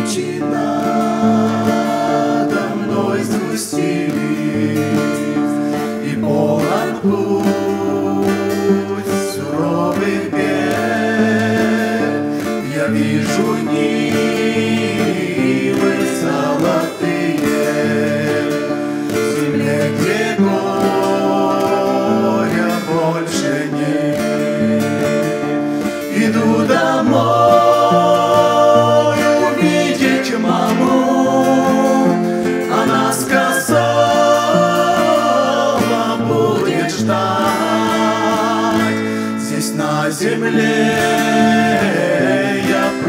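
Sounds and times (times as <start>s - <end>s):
acoustic guitar: 0.0s - 43.0s
group singing a hymn: 0.0s - 43.0s.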